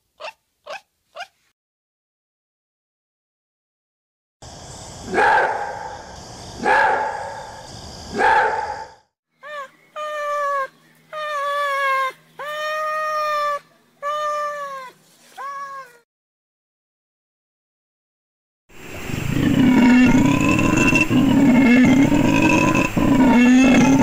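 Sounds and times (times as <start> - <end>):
wolf barking: 0.2 - 1.4, 5.1 - 6.0, 6.6 - 7.5, 8.1 - 8.9
wolf whining calls: 0.2 - 1.4, 19.4 - 24.0.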